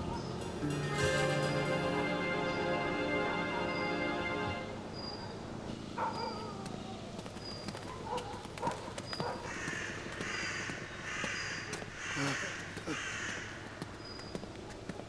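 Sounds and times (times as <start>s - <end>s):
footstep-like clicks: 6.6s - 15.0s
crow cawing: 9.4s - 13.9s.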